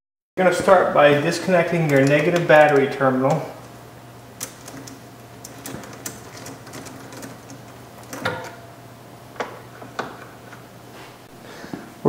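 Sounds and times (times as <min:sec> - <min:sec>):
wrench ticking and clicking on nut: 0:01.8 - 0:03.0.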